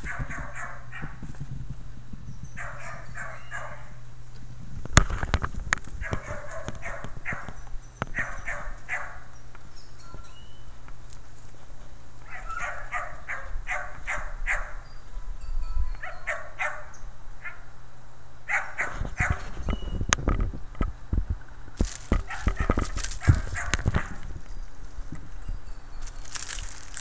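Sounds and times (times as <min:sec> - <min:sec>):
dog barking: 0:00.0 - 0:01.2, 0:02.6 - 0:04.0, 0:06.0 - 0:07.6, 0:08.2 - 0:09.3, 0:12.3 - 0:14.8, 0:16.0 - 0:17.6, 0:18.5 - 0:19.4, 0:22.2 - 0:24.2
rough crackling and knocking: 0:04.6 - 0:08.2, 0:19.6 - 0:25.4, 0:26.0 - 0:27.0.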